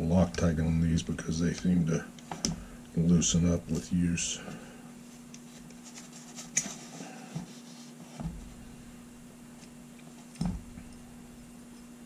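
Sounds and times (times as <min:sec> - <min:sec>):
low hum: 0:08.2 - 0:12.0.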